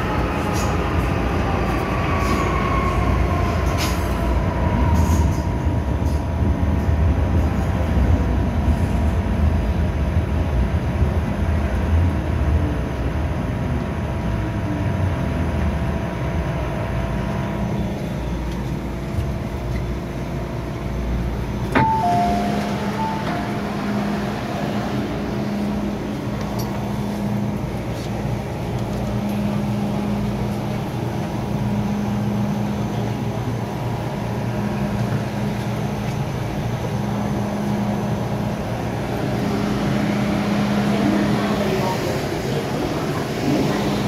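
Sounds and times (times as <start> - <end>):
train rumble and hum: 0.0 - 44.0
two-note falling chime: 21.8 - 23.8.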